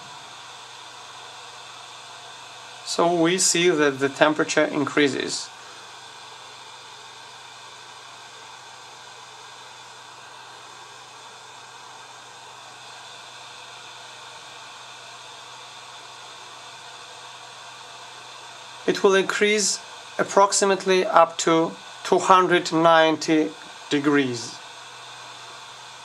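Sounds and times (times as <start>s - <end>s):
hot air gun fan blowing: 0.0s - 26.0s.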